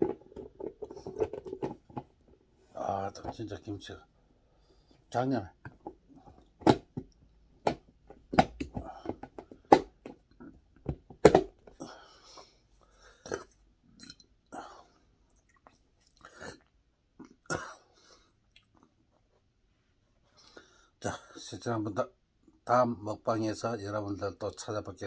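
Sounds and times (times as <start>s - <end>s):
chewing and mouth noises: 15.3s - 16.7s.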